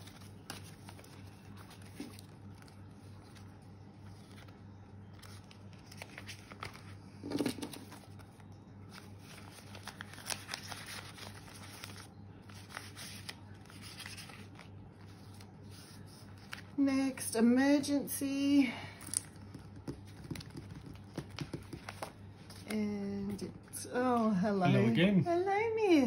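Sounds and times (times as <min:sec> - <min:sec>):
banknotes and plastic rustling: 0:00.0 - 0:17.2
faint low hum: 0:00.0 - 0:26.0.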